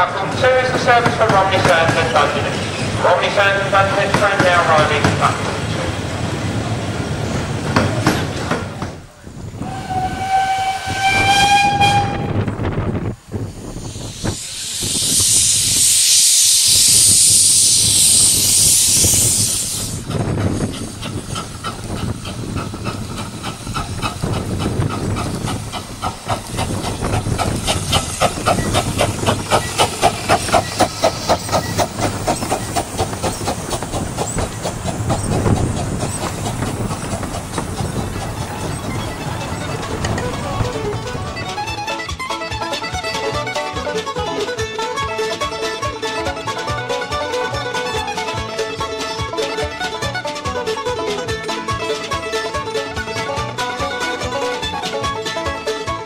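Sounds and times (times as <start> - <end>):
steam locomotive exhaust chuffs: 0.0 - 56.0
loud hiss of steam: 9.4 - 40.9
steam whistle blowing: 9.6 - 12.5.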